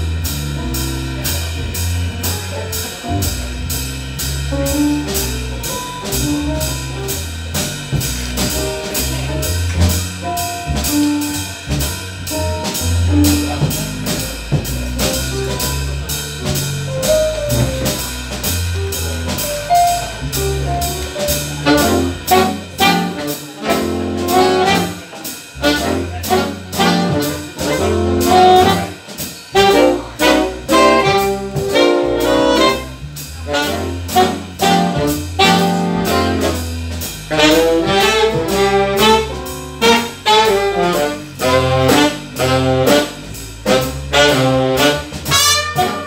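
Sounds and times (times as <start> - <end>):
bass line: 0.0 - 46.0
drum kit beat: 0.0 - 46.0
saxophone melody: 20.7 - 25.0, 25.6 - 36.7, 37.3 - 46.0.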